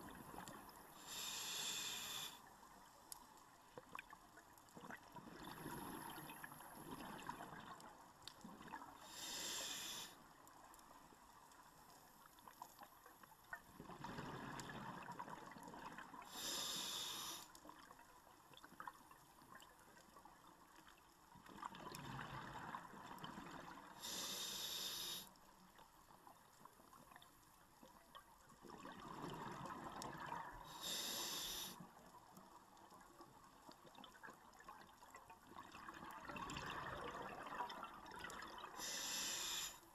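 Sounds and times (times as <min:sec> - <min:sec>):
regulator inhalation hiss: 0:01.0 - 0:02.4, 0:09.1 - 0:10.2, 0:16.3 - 0:17.5, 0:24.0 - 0:25.3, 0:30.7 - 0:31.8, 0:38.8 - 0:39.8.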